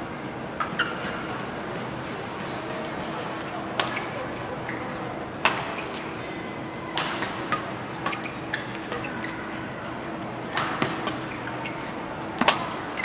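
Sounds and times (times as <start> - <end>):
racket hitting shuttlecock: 12.4 - 12.8.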